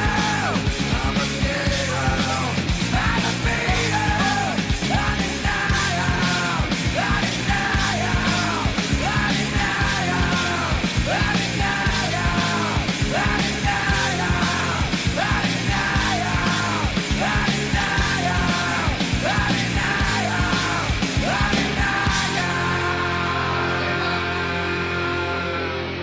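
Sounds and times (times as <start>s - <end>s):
fast drum beat: 0.0s - 23.3s
hard rock music: 0.0s - 26.0s
person singing: 0.0s - 26.0s.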